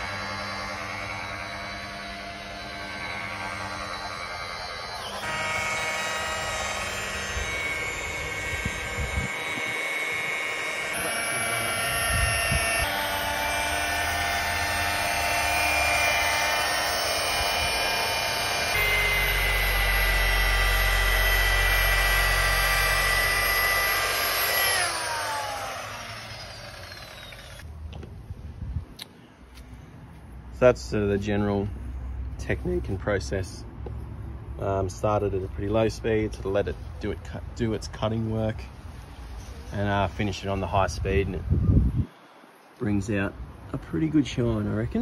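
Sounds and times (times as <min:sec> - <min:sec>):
electric polisher motor whine: 0:00.0 - 0:27.6.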